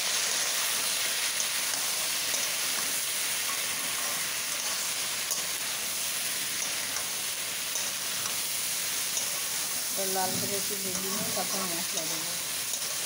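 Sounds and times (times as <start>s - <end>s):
food sizzling in hot oil: 0.0s - 13.0s.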